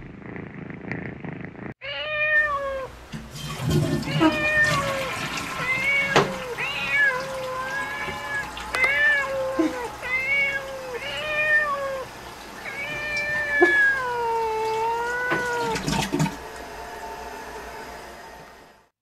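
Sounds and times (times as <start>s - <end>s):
kitten meowing: 1.8s - 2.9s, 4.0s - 15.8s.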